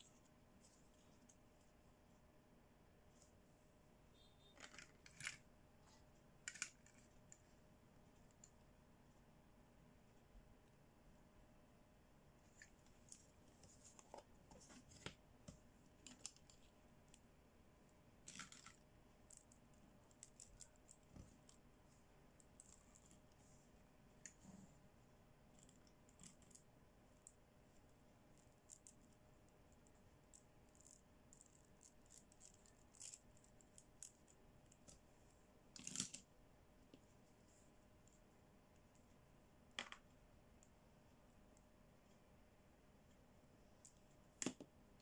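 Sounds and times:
plastic toys clicking and tapping: 4.5 - 5.4, 6.4 - 7.4
plastic toys clattering: 4.5 - 5.5.

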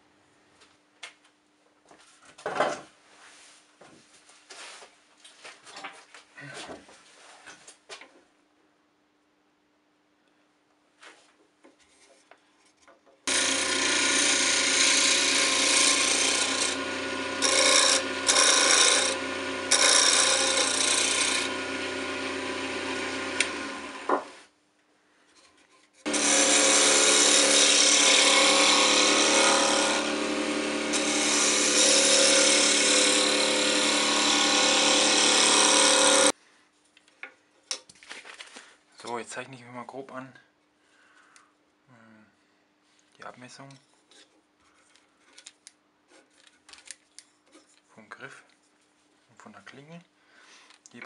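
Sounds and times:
chisel cutting wood: 13.3 - 24.4, 26.0 - 36.4
wood lathe running: 13.3 - 24.4, 26.1 - 36.3.

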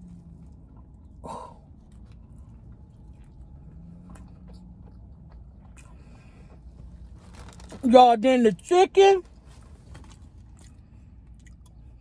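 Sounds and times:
person chewing food: 0.0 - 7.0, 10.0 - 12.0.

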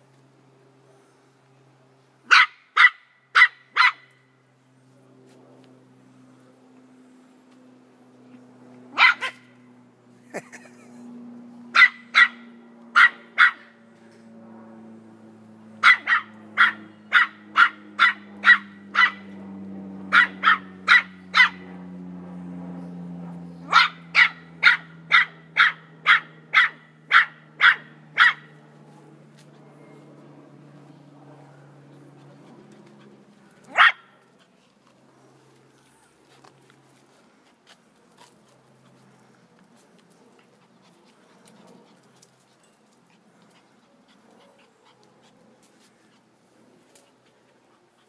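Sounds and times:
puppy barking high and sharp: 2.3 - 4.1, 8.9 - 9.5, 11.7 - 13.8, 15.8 - 19.3, 20.1 - 21.6, 23.7 - 28.5, 33.7 - 34.2.

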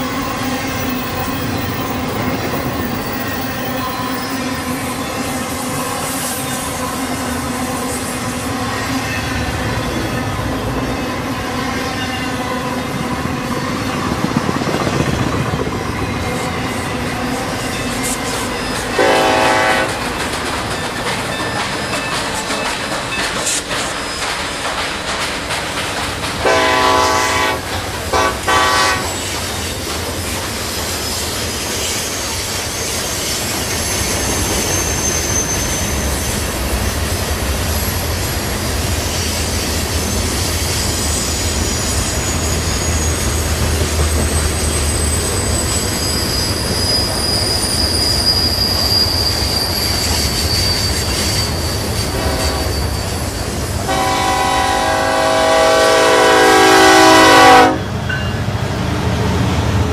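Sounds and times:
high thin wheel squeal: 0.0 - 5.3, 16.3 - 24.5, 30.6 - 37.0, 39.0 - 54.4
model diesel locomotive rumble: 0.0 - 59.9
diesel horn blasts: 19.0 - 20.0, 26.4 - 29.2, 52.2 - 52.7, 53.9 - 57.9.

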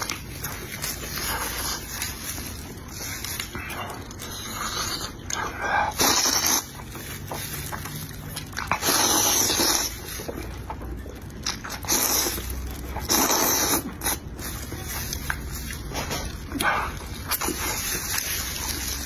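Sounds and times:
wet chewing: 0.0 - 19.0
loud noodle slurping: 3.6 - 6.9, 8.6 - 10.4, 11.6 - 14.5.

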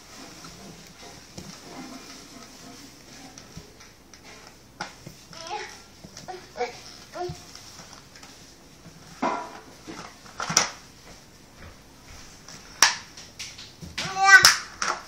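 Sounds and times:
hands slapping wooden floor: 10.4 - 15.0.

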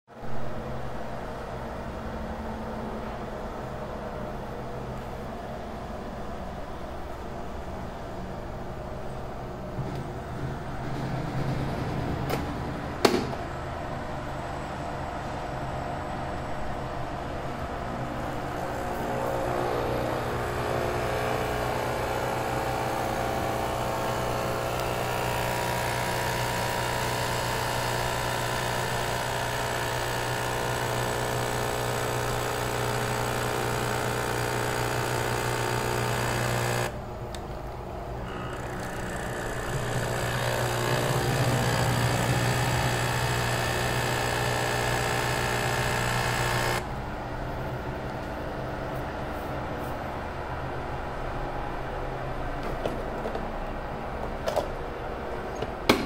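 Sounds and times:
capsule machine pump buzzing: 17.4 - 48.2.

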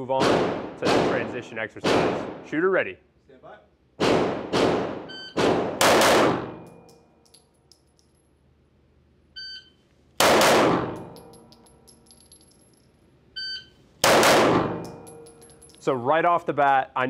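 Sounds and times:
pistol shots echoing indoors: 0.2 - 2.4, 4.0 - 7.0, 10.2 - 11.8, 14.0 - 15.8
spent brass tinkling on floor: 11.0 - 13.0, 14.8 - 15.9.

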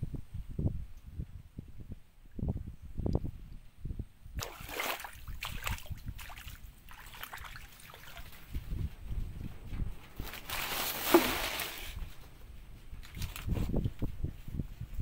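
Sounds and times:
crackly rustling with clicks: 7.7 - 15.0.

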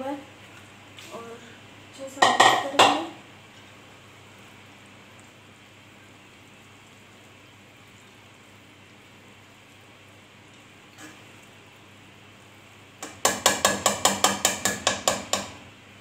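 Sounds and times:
faint sizzling in a pot: 0.0 - 16.0.

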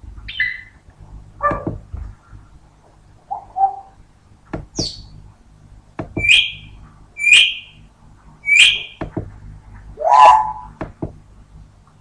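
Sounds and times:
parrot whistled calls: 0.3 - 0.8, 3.3 - 3.9, 6.2 - 7.8, 8.4 - 9.0, 10.0 - 10.8.

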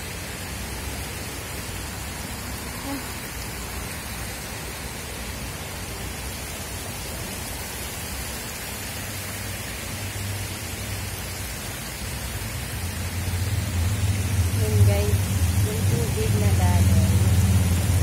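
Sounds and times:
water rushing down a cascade: 0.0 - 18.0.

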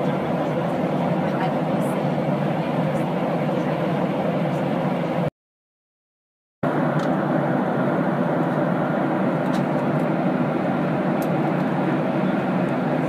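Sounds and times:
airliner cabin engine rush: 0.0 - 5.3, 6.6 - 13.0.

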